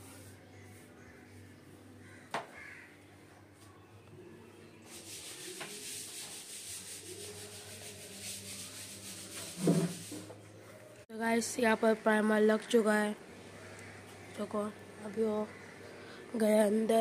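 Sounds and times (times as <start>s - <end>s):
paint roller wet rubbing hiss: 4.8s - 10.3s.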